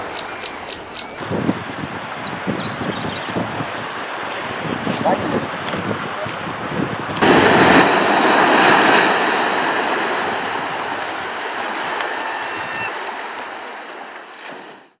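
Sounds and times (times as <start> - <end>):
sea waves on rocky shore: 3.2 - 15.0.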